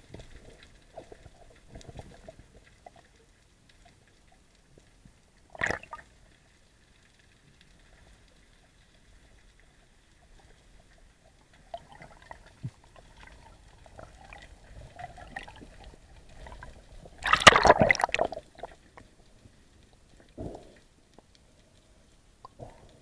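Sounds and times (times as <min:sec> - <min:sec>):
faint clicks: 0:00.0 - 0:17.2, 0:18.6 - 0:23.0
underwater bubbling and gurgling: 0:00.0 - 0:23.0
loud burst of bubbles: 0:17.2 - 0:18.4.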